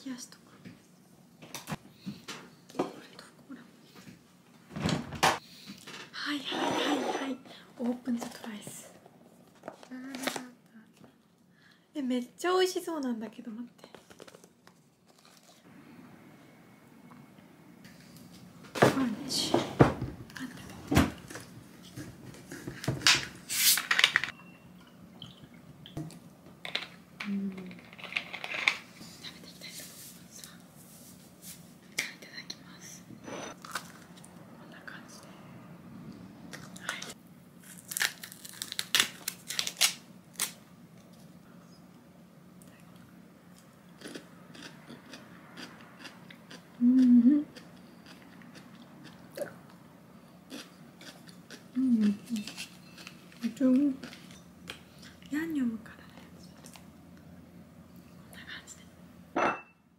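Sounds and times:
crunching and chewing: 14.0 - 15.7, 33.6 - 34.3, 36.5 - 41.3, 42.7 - 49.8, 50.5 - 55.3
hummed mm: 46.8 - 47.6.

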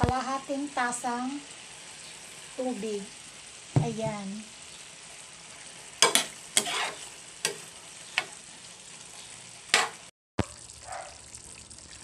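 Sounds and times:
pan simmering hiss: 0.0 - 12.0
spatula scraping a metal pan: 6.0 - 8.4, 9.7 - 10.1.

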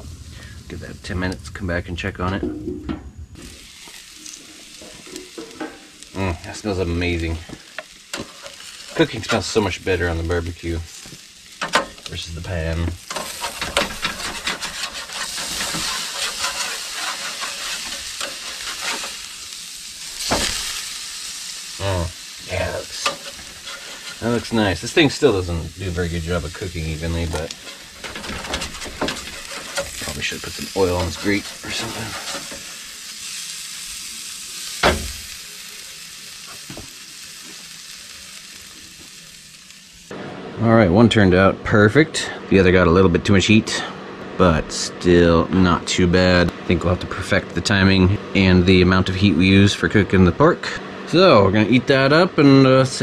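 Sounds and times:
meat sizzling on a grill: 0.0 - 2.2, 3.4 - 40.2, 41.2 - 53.0
metal spatula scraping grate: 13.0 - 19.3, 22.7 - 32.8.

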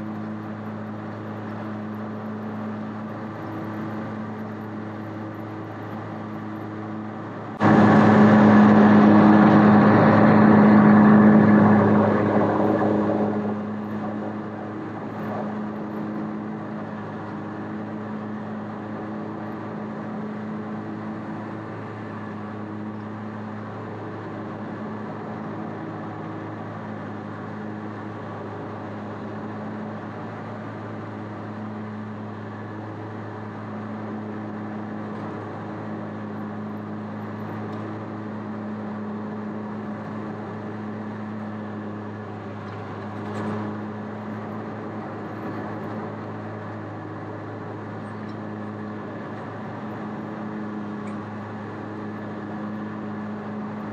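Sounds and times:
mower engine running: 0.0 - 27.3
loud rush of noise: 7.4 - 17.2.

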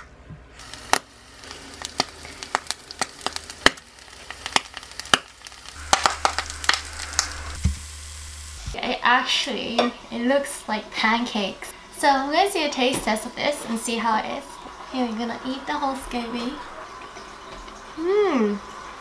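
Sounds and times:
crackling oil pops: 0.6 - 7.9
frying sizzle: 0.6 - 19.0.

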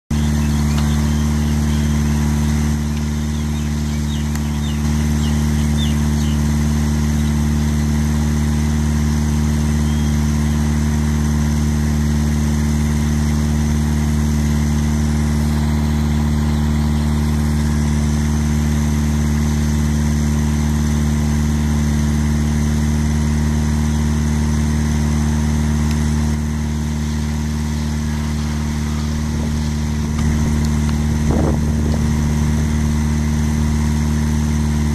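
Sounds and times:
idling engine hum: 0.1 - 34.9
faint high chirps: 9.8 - 10.3.

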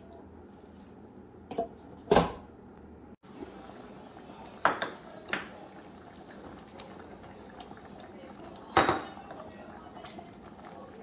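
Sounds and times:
pots and dishes clattering: 4.6 - 7.8, 8.6 - 9.5.

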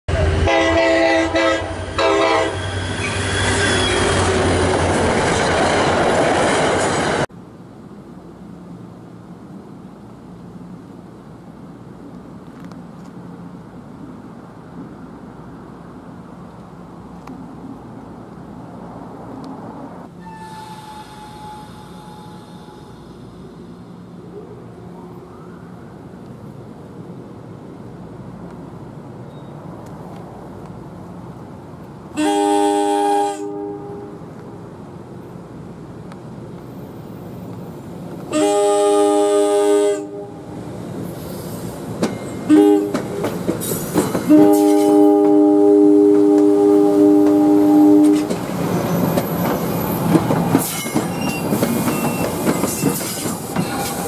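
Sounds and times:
train horn blasts: 0.1 - 4.4, 20.2 - 23.0, 32.2 - 34.2, 38.3 - 40.4, 42.4 - 43.0, 44.3 - 48.4
passing train rumble: 0.1 - 54.0.

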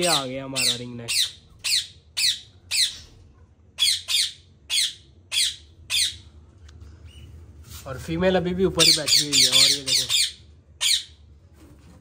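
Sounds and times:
parakeets screeching: 0.0 - 3.2, 3.8 - 6.3, 8.7 - 11.2.

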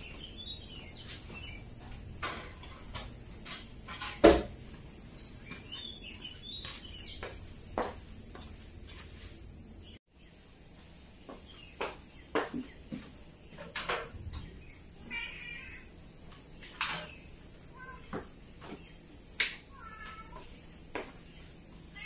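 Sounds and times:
small birds chirping: 0.0 - 22.0
steady high hiss: 0.0 - 22.0.

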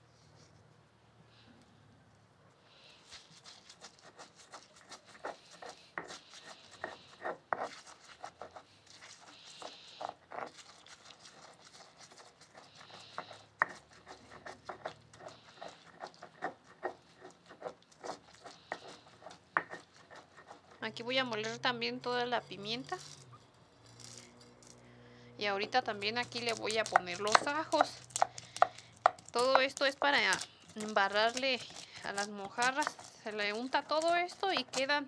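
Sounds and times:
gritty grinding rub: 2.9 - 35.0.

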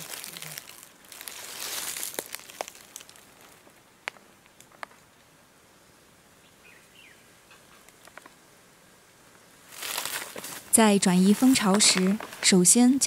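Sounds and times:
rustling: 0.0 - 5.1, 9.6 - 12.8.

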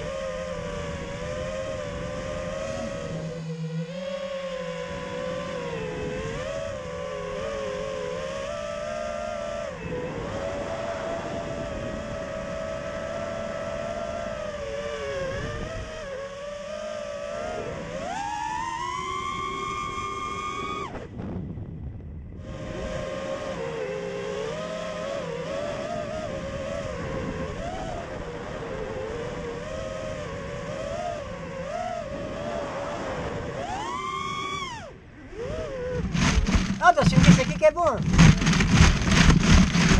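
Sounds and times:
wind noise: 0.0 - 16.3, 17.4 - 39.9
quadcopter motors whining: 0.0 - 21.5, 22.3 - 39.9
wind rush: 35.2 - 39.9.

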